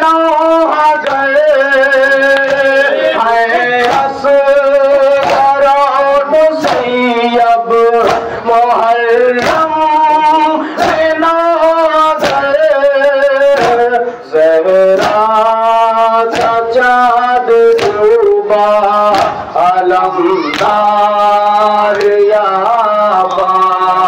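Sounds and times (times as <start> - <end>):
men chanting over a microphone: 0.0 - 24.0
chest slaps: 3.8 - 4.2, 5.2 - 5.6, 6.6 - 6.9, 8.0 - 8.4, 9.4 - 9.7, 12.2 - 12.5, 13.5 - 13.9, 15.0 - 15.3, 16.3 - 16.6, 17.8 - 18.0, 19.1 - 19.5.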